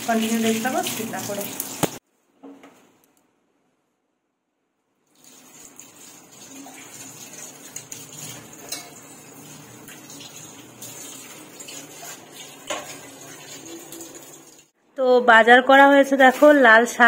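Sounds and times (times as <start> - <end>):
metal ladle clinking on pot: 8.6 - 9.0.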